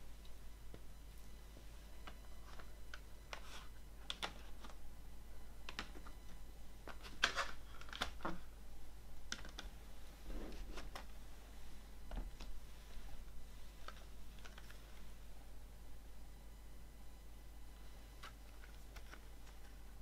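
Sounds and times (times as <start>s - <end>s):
plastic cd cases clicking: 6.8s - 8.4s, 9.3s - 9.7s, 13.8s - 14.8s.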